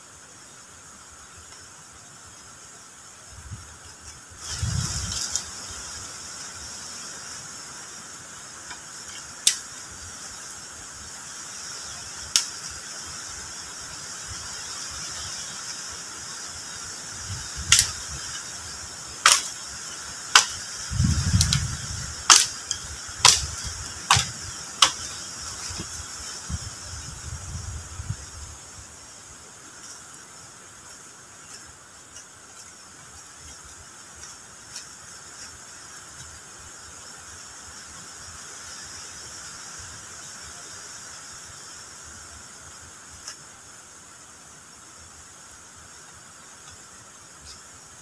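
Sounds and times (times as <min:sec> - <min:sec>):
machete chopping wooden pole: 0:17.6 - 0:18.0, 0:19.2 - 0:19.6, 0:20.3 - 0:20.6, 0:21.3 - 0:25.2.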